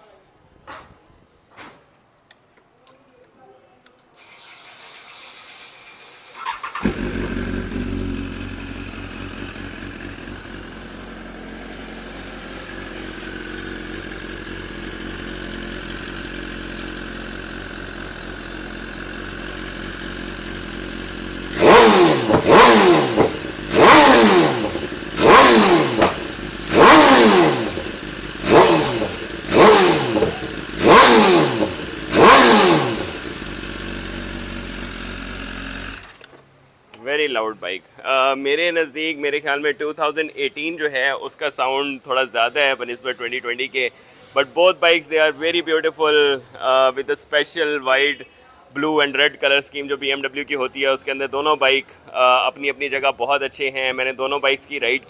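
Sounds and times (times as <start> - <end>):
motorcycle engine starting and idling: 4.2 - 36.6
motorcycle engine revving: 4.3 - 36.3.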